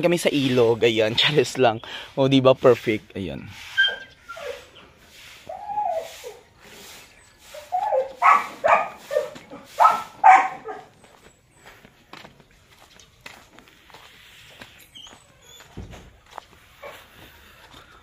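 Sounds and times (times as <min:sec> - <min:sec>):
dog yelping: 0:03.7 - 0:04.8, 0:05.5 - 0:06.5, 0:07.5 - 0:11.0
dog barking: 0:07.8 - 0:10.9.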